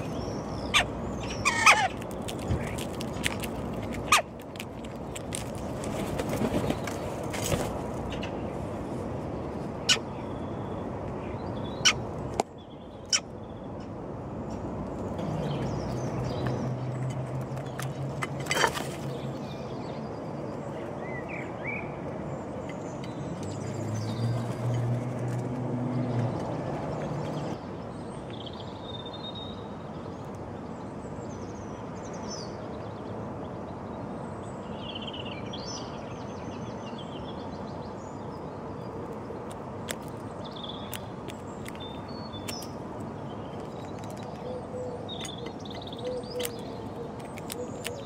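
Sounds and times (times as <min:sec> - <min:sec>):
birds pecking on concrete: 0:00.0 - 0:08.3, 0:14.6 - 0:19.6, 0:38.6 - 0:48.0
outdoor background noise: 0:00.0 - 0:48.0.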